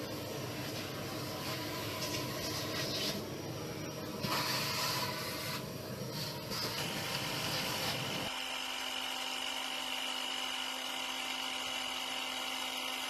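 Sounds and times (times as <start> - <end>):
electric power tool running: 6.8 - 13.0.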